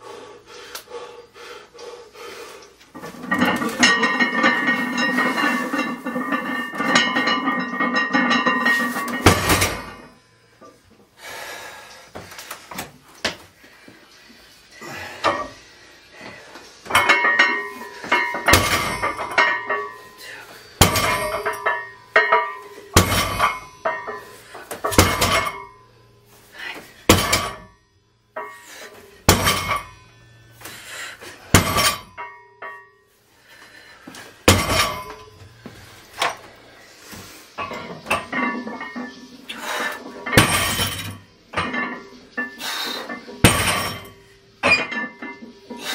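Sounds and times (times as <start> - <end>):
weight plates clanking: 2.9 - 10.8, 14.8 - 27.7, 28.4 - 33.0, 34.4 - 45.9
barbell thudding on floor: 6.8 - 10.1, 18.1 - 19.6, 20.8 - 22.4, 23.0 - 24.0, 24.7 - 25.6, 27.1 - 27.6, 31.5 - 32.3, 34.5 - 35.2, 40.3 - 41.9, 43.4 - 45.1
bar thudding on floor: 27.1 - 27.6.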